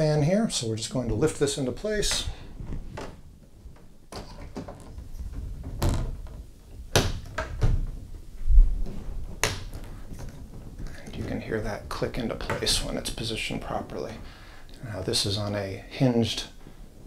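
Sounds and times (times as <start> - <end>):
plastic knocks: 4.1 - 8.2.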